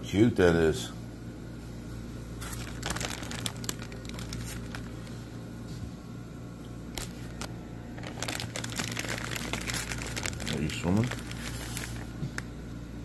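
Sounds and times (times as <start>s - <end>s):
steady low hum: 0.0s - 13.0s
plastic bags crinkling: 2.4s - 5.2s, 6.9s - 12.5s.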